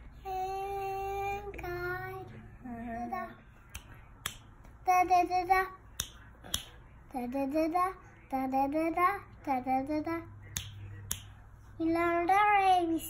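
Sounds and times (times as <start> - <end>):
girl singing: 0.0 - 3.8, 4.8 - 6.1, 7.1 - 10.4, 11.8 - 13.0.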